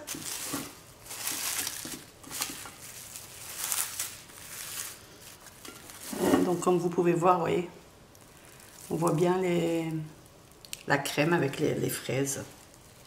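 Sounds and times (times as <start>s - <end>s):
cling film crinkling: 0.0s - 6.2s, 8.1s - 10.9s, 12.1s - 13.0s.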